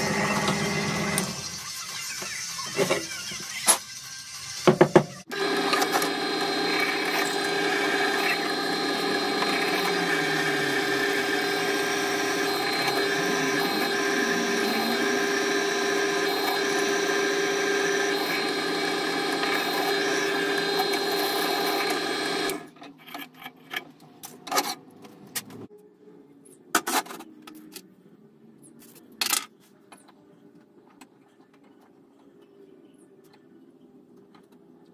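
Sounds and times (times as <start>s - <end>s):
drill press humming: 0.0s - 1.4s, 5.3s - 22.7s.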